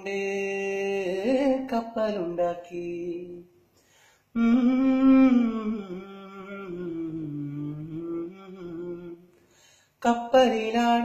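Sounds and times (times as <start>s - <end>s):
person singing a long wordless note: 4.4s - 9.3s.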